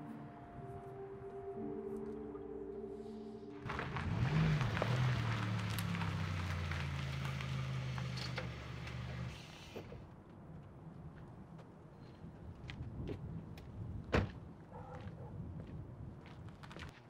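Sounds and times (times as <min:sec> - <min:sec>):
car engine running: 0:03.7 - 0:09.9.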